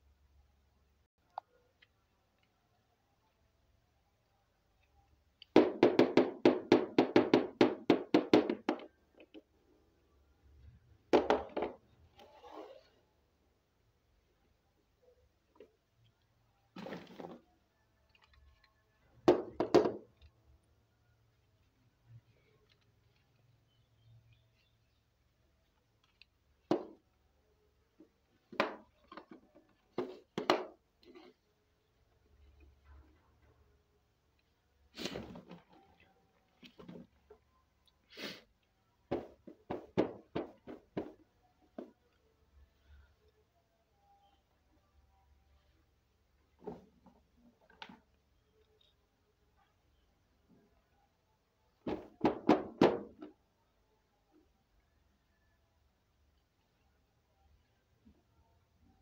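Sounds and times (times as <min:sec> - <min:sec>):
plastic toy knocking on table: 0:19.2 - 0:20.0, 0:39.1 - 0:41.2.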